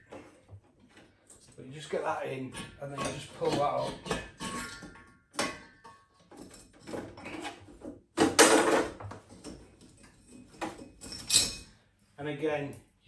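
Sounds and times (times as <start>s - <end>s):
metal clunks and scrapes: 1.8s - 11.7s.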